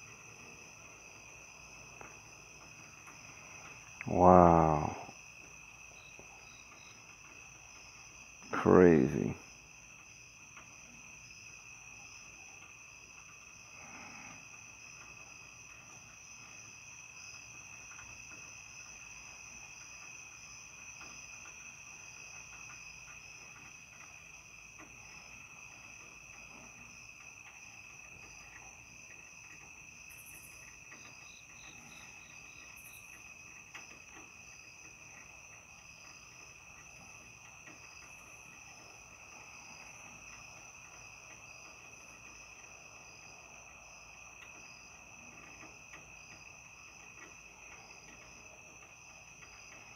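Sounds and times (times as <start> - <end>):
insects trilling: 0.0 - 49.9
quick insect chirps: 27.2 - 35.4.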